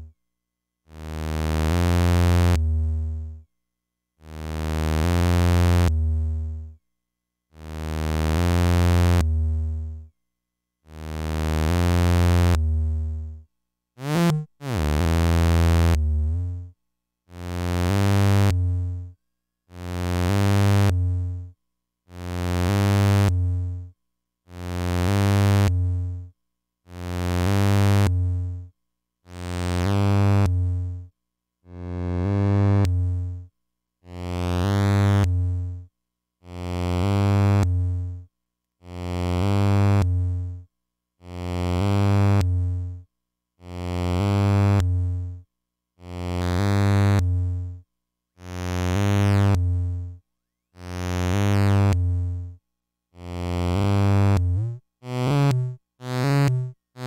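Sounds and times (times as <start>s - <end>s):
pulsing buzzy synth bass: 14.0s - 16.6s, 53.7s - 57.0s.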